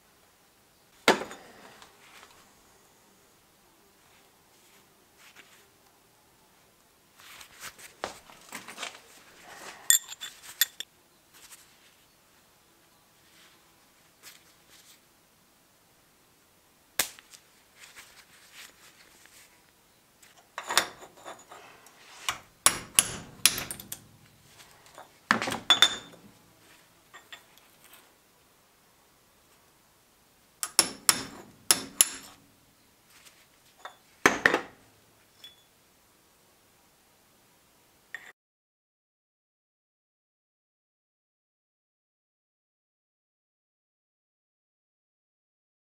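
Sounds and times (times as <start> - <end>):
screwdriver clinking on metal: 9.9 - 10.9, 22.2 - 26.3, 27.2 - 28.0, 30.6 - 32.4, 35.4 - 35.6
metal knocking against vise: 22.7 - 24.1, 30.6 - 32.3.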